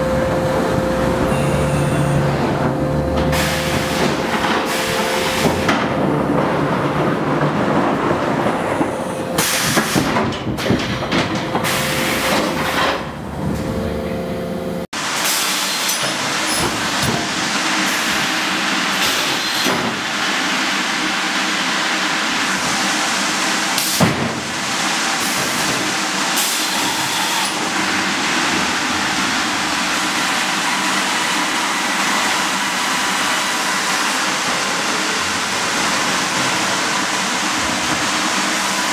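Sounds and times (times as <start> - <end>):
sawmill machinery clatter: 0.0 - 13.7, 15.0 - 38.9
machinery clunks: 0.1 - 13.9.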